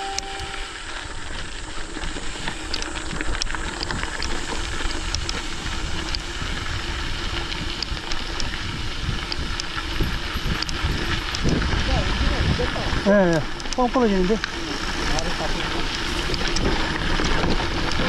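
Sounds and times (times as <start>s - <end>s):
bike clicks and rattles: 1.0s - 18.0s
wind on microphone: 3.1s - 13.6s.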